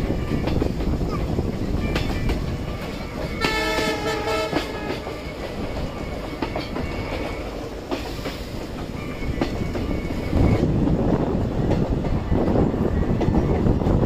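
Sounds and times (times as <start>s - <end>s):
train carriage rumbling: 0.0s - 14.0s
wheels clicking over rails: 0.0s - 14.0s
train horn: 3.3s - 5.6s.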